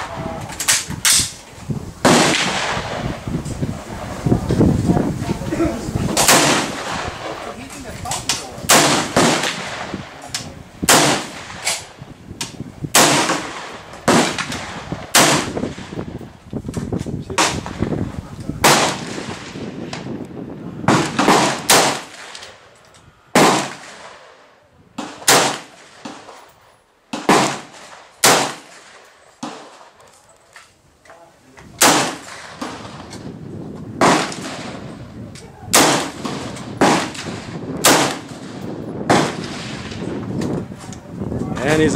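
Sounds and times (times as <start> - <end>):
rifle shots with echo: 2.0 - 3.2, 6.1 - 12.0, 12.9 - 16.0, 17.4 - 18.0, 18.6 - 20.1, 20.8 - 22.6, 23.3 - 26.4, 27.1 - 30.0, 31.8 - 33.2, 34.0 - 34.9, 35.7 - 40.1.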